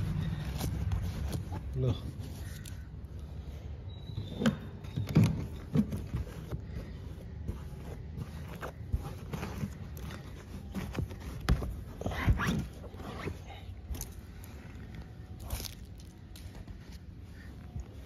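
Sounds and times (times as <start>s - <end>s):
hand brushing fabric sofa: 0.0s - 2.6s, 5.9s - 13.5s.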